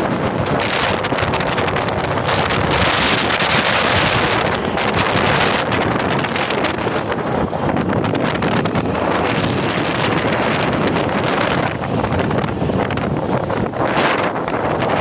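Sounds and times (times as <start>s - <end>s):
motorcycle running: 0.0s - 15.0s
road noise: 0.0s - 15.0s
wind buffeting microphone: 0.0s - 15.0s.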